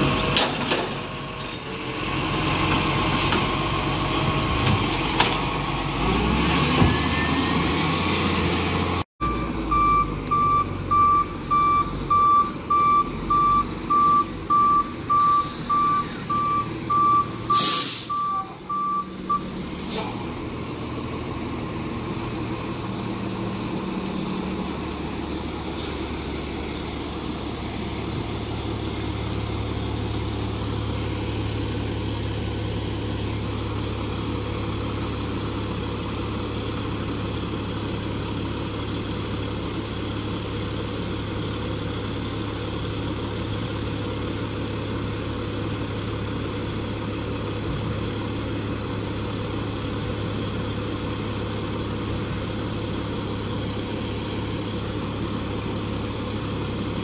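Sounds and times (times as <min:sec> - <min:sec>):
diesel truck engine running: 0:00.0 - 0:57.0
brief high hiss: 0:17.5 - 0:18.2.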